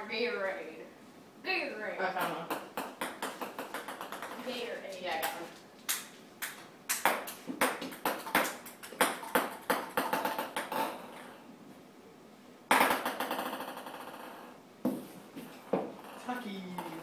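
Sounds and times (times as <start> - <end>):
table tennis ball clicking: 2.2 - 4.5, 12.7 - 14.4.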